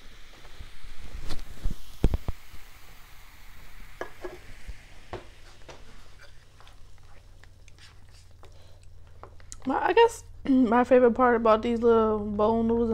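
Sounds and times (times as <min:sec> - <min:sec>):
noodles slurped and chewed: 0:06.4 - 0:09.6.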